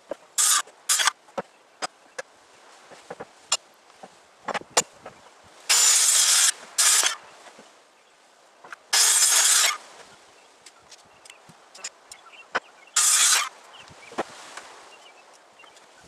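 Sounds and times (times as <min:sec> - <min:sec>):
handheld power saw cutting wood: 0:00.4 - 0:01.2, 0:05.7 - 0:07.2, 0:09.0 - 0:09.8, 0:13.0 - 0:13.5.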